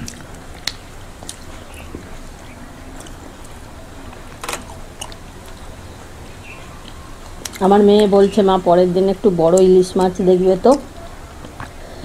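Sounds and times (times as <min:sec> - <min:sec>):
chewing: 0:00.0 - 0:05.7, 0:06.6 - 0:07.7, 0:09.5 - 0:11.8
fingers mixing food on plates: 0:06.6 - 0:11.8.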